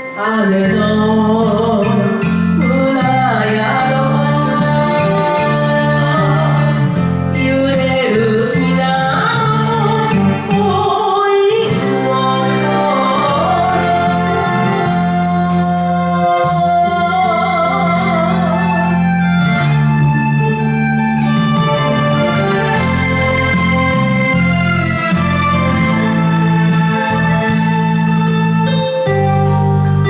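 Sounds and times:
woman singing ballad: 0:00.0 - 0:19.7
karaoke backing track: 0:00.0 - 0:30.0.

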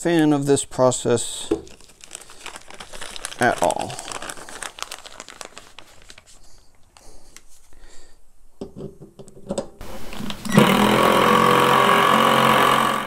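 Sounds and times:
louder noise: 0:09.8 - 0:13.0.

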